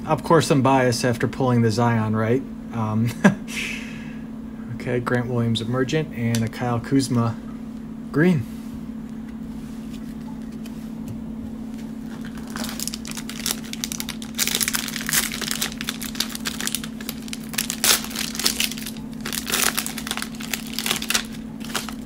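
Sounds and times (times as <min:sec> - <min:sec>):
steady low hum: 0:00.0 - 0:22.0
cellophane wrapper crinkling: 0:12.0 - 0:22.0.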